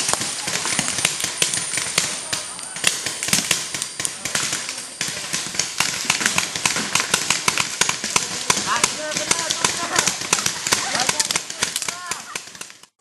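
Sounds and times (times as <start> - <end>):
paintball markers firing: 0.0 - 13.0.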